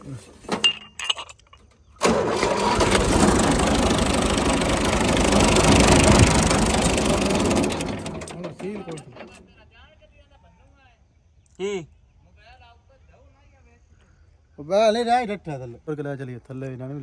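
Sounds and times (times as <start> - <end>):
diesel engine cranking: 0.5 - 9.5.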